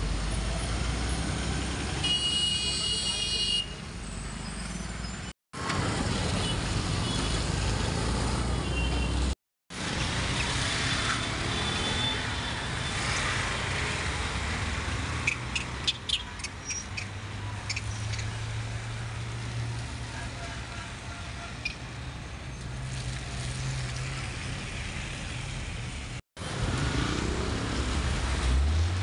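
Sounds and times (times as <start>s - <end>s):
road traffic rumble: 0.0s - 29.0s.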